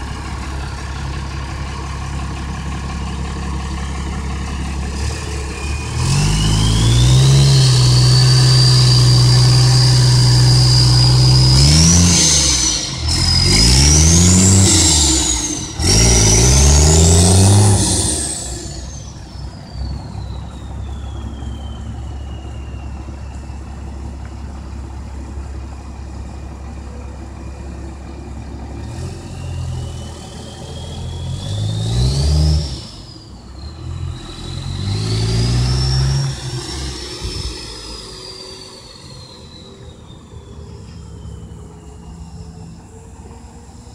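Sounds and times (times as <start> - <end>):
diesel truck engine revving: 0.0 - 43.9
turbo whistle: 4.4 - 24.1, 29.1 - 43.1.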